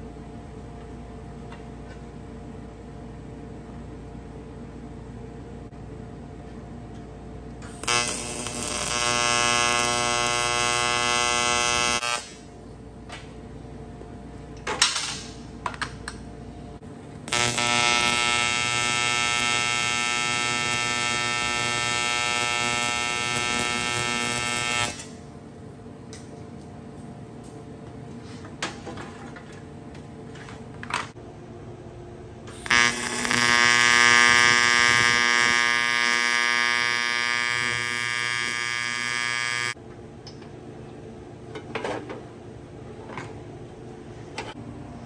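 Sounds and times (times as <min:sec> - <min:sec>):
welding arc buzzing: 0:07.6 - 0:12.6, 0:16.9 - 0:25.3, 0:32.5 - 0:39.8.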